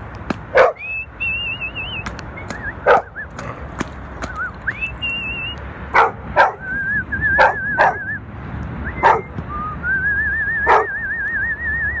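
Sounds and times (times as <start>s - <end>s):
low rumble of rain and city: 0.0s - 12.0s
dog barking sharply: 0.5s - 0.8s, 2.8s - 3.1s, 5.9s - 6.6s, 10.7s - 10.9s.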